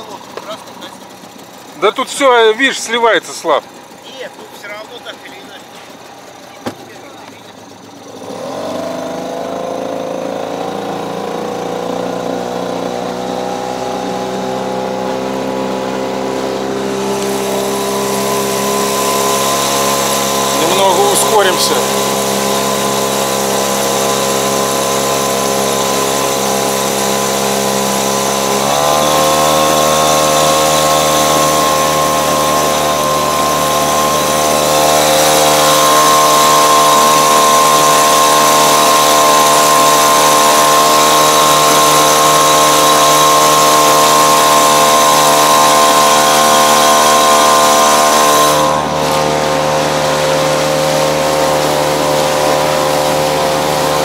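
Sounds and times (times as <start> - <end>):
outboard motor running: 0.0 - 54.0.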